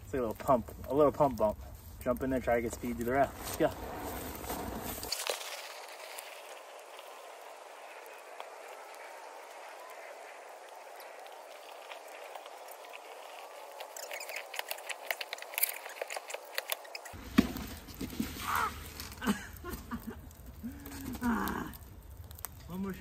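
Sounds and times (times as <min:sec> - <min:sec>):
snowboard scraping over icy snow: 0:02.1 - 0:20.0.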